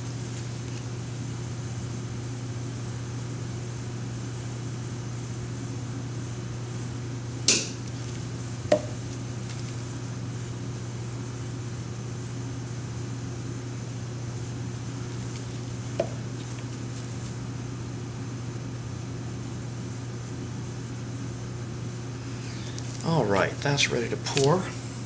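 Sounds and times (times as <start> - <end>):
steady low hum: 0.0 - 25.0
plastic cups knocking: 8.7 - 9.0.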